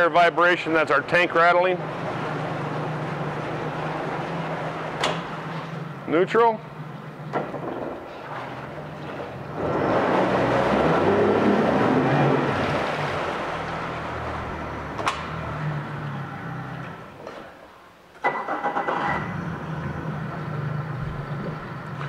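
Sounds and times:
outboard motor running: 0.6s - 17.2s.

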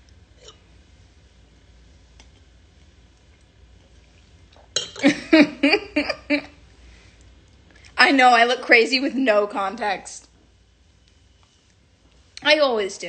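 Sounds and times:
wine glass clinks: 4.8s - 5.1s.

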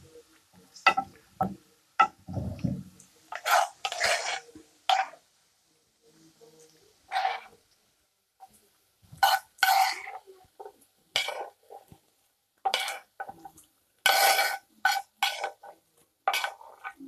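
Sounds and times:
metal spoon scraping frying pan: 3.3s - 5.2s, 9.2s - 10.2s, 11.2s - 12.0s, 12.7s - 13.4s, 14.0s - 17.0s.

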